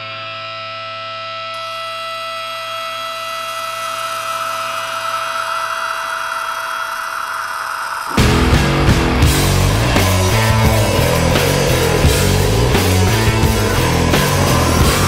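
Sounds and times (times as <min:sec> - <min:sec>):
held tones: 0:01.6 - 0:15.0
whooshing noise swell: 0:08.1 - 0:15.0.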